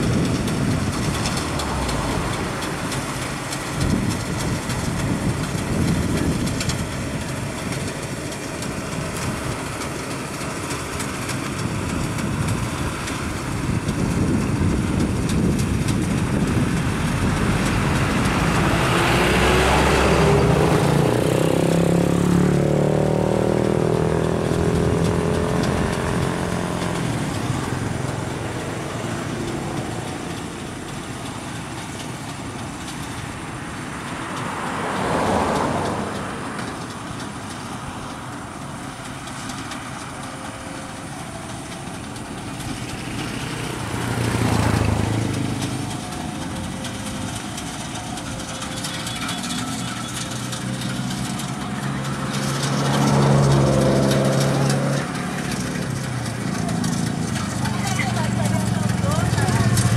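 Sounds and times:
combine harvester running: 0.0s - 59.9s
vehicles passing: 0.0s - 59.9s.

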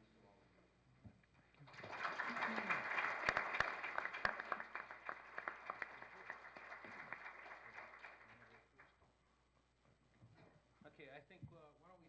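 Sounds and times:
audience applauding: 1.6s - 8.9s.

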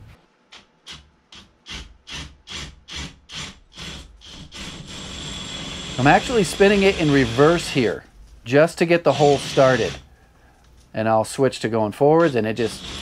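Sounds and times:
drill motor whine: 3.4s - 7.8s, 9.1s - 10.0s, 12.2s - 13.0s
hole saw scraping masonry: 5.8s - 8.0s, 9.2s - 10.0s.

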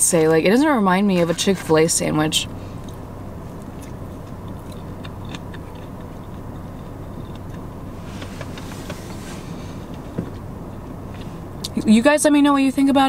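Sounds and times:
low car cabin hum: 0.0s - 13.0s
chewing: 3.6s - 8.7s
short rustle: 8.0s - 10.2s.

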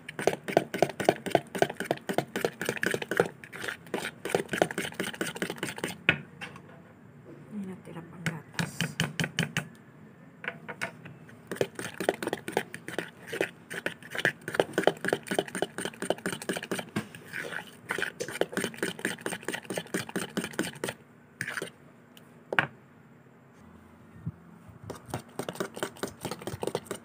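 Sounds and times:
spoon clicking and scraping bowl: 0.1s - 6.0s, 11.5s - 21.7s, 24.9s - 27.0s.

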